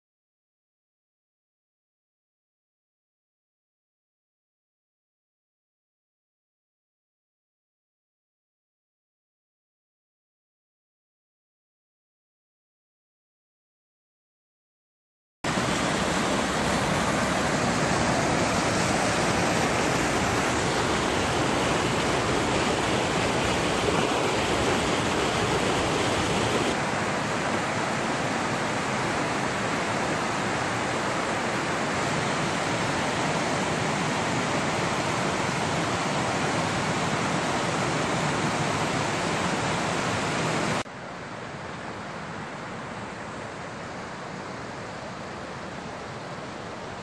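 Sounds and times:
waterfall and creek rushing: 0:15.5 - 0:47.0.

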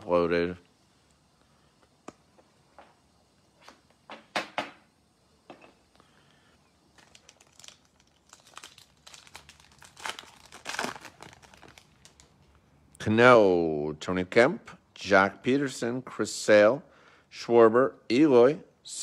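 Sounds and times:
plastic wrapper crinkling and tearing: 0:06.9 - 0:12.6.

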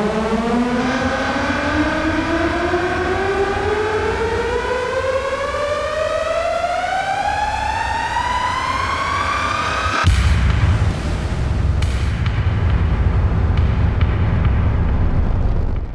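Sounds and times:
rising siren-like synth tone: 0:00.0 - 0:10.1
steady low rumble: 0:10.1 - 0:15.9.

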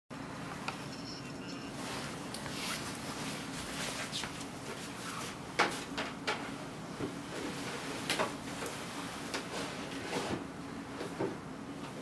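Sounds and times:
low steady hum: 0:00.1 - 0:09.4.

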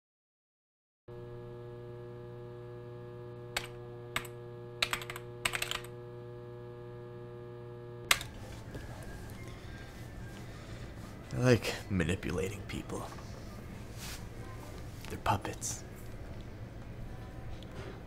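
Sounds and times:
electrical hum: 0:01.1 - 0:18.0
keyboard typing: 0:03.6 - 0:05.9.

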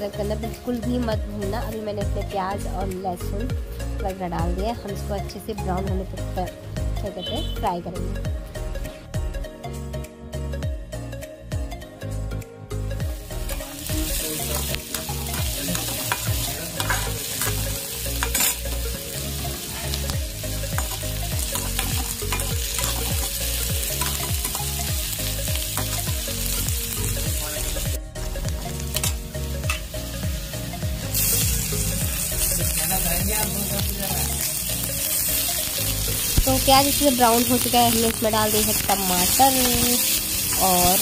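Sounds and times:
onion sizzling in hot oil: 0:13.0 - 0:41.0
metal spatula scraping a pan: 0:15.7 - 0:17.6, 0:18.2 - 0:18.7.

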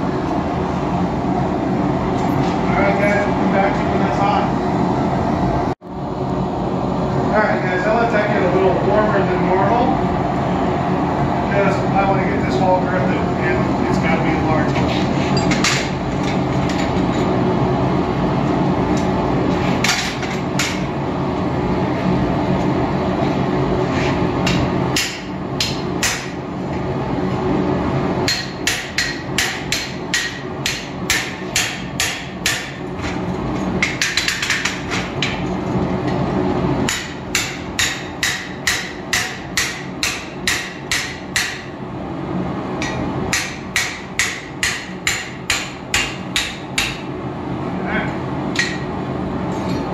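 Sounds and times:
steady hum: 0:00.0 - 0:49.9
hammer striking steel on anvil: 0:24.5 - 0:26.4, 0:28.3 - 0:32.8, 0:36.8 - 0:41.7, 0:42.8 - 0:47.1, 0:48.5 - 0:48.9.

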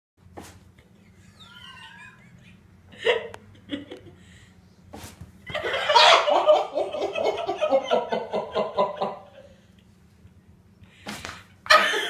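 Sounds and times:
person laughing hard: 0:01.0 - 0:04.2, 0:05.5 - 0:09.5, 0:11.7 - 0:12.0.

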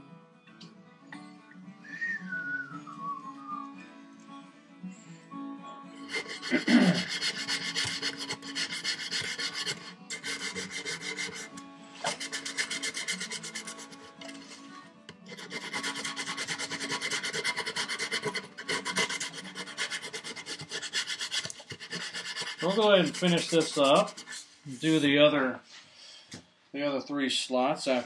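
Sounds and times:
sandpaper rubbing wood: 0:06.1 - 0:14.6, 0:15.3 - 0:25.0.

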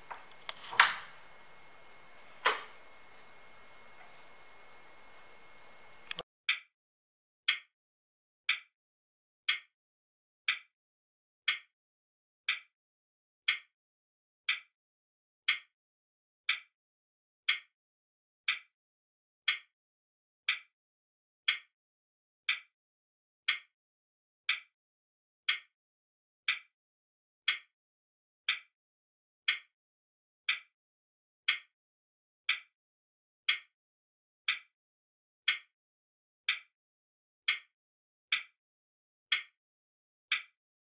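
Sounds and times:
clock ticking: 0:07.5 - 0:07.7, 0:08.5 - 0:08.7, 0:09.5 - 0:09.7.

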